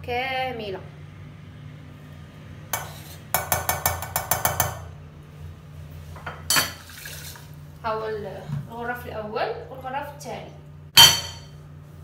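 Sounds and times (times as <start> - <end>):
spoon scraping saucepan: 2.8 - 4.0
metal spoon clinking on saucepan: 11.0 - 11.5.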